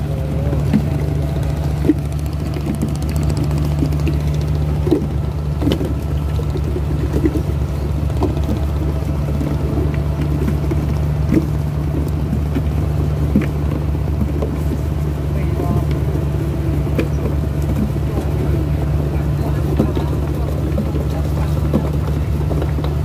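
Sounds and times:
boat engine humming: 0:00.0 - 0:23.0
water rushing along hull: 0:00.0 - 0:23.0.

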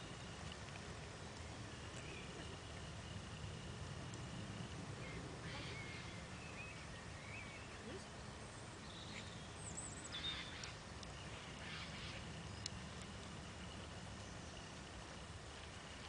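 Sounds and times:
faint bird chirps: 0:05.0 - 0:15.3.

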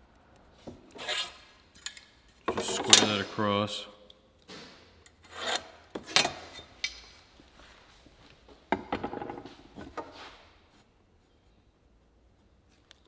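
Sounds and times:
metal scraping on wood: 0:00.8 - 0:01.6, 0:05.2 - 0:06.7.

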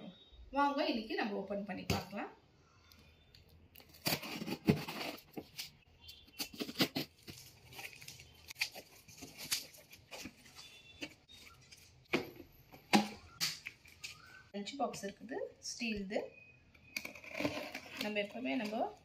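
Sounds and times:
tape tearing: 0:03.8 - 0:11.1.

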